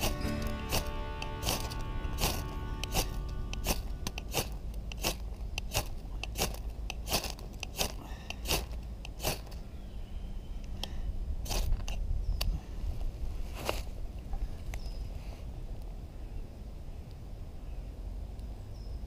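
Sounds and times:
knife scraping ferrocerium rod: 0.0s - 9.6s.

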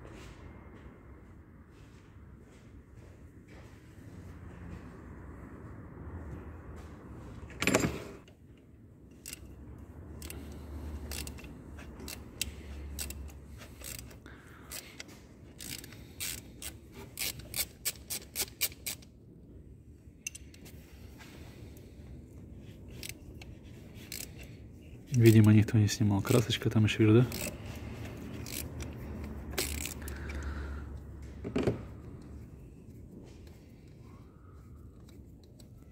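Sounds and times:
sharp metallic clicks and clinks: 20.2s - 20.7s.

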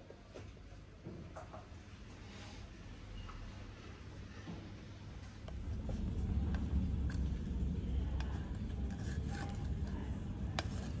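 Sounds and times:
steady low rumble: 5.4s - 11.0s.

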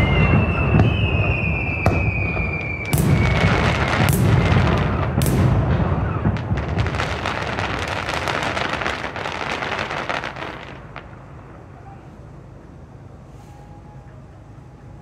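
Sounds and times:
firework shell bursting: 0.0s - 11.4s.

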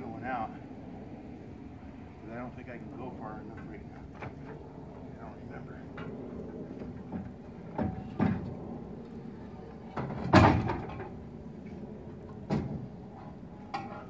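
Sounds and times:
heavy metal clanks and knocks: 9.9s - 11.2s.

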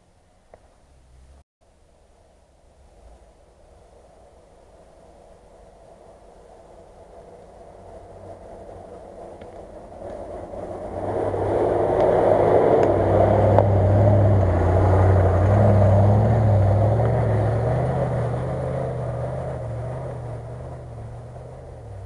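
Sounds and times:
suv engine driving past: 7.6s - 22.0s.

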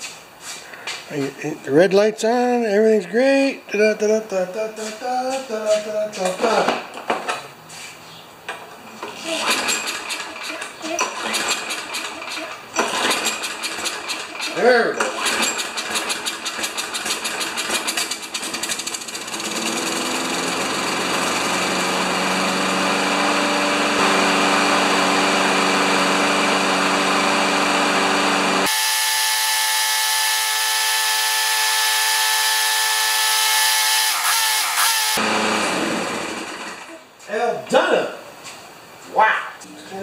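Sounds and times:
lawn mower engine running: 9.4s - 36.9s.

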